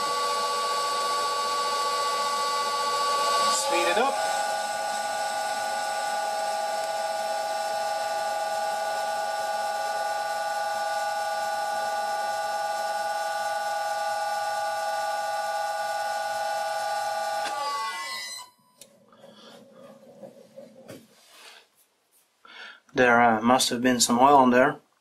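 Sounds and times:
metal lathe whining: 0:00.0 - 0:18.5.

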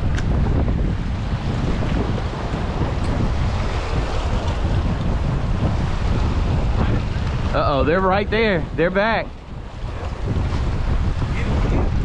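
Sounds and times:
waves splashing against rocks: 0:00.0 - 0:07.7
wind buffeting microphone: 0:00.0 - 0:12.0.

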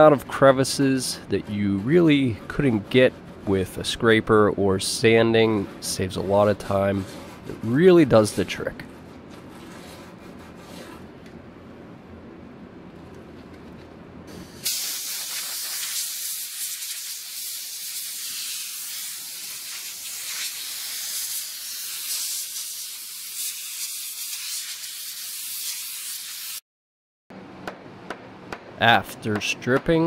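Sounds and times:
compressed air blow gun hissing: 0:14.3 - 0:26.6.

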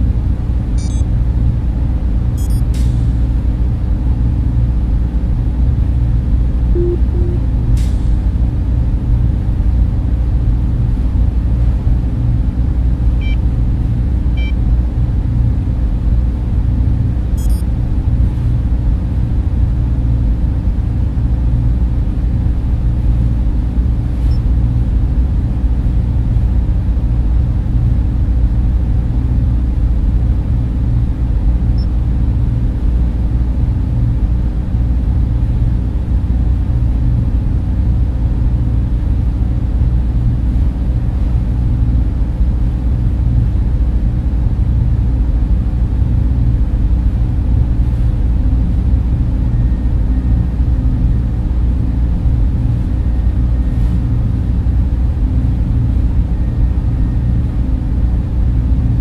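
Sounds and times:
low rumbling sci-fi ambience: 0:00.0 - 0:59.0
faint electronic beeps: 0:00.8 - 0:01.0, 0:02.4 - 0:02.7, 0:06.8 - 0:07.5, 0:17.4 - 0:17.7.

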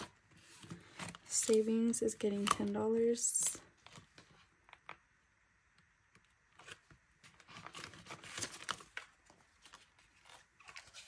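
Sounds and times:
plastic binder pocket crinkling: 0:06.5 - 0:11.0
banknotes rustling: 0:06.6 - 0:11.0.

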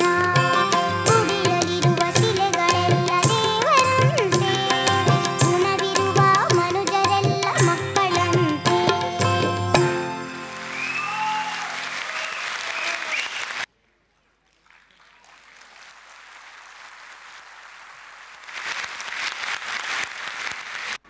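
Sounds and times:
band playing: 0:00.0 - 0:13.1
audience applauding: 0:10.1 - 0:21.0.

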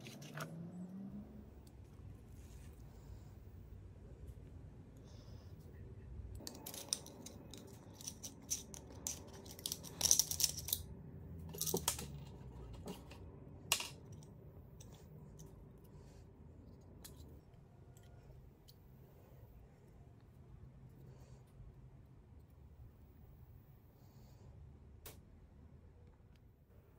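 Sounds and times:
metal parts clicking and scraping: 0:06.4 - 0:10.9, 0:11.5 - 0:15.5.

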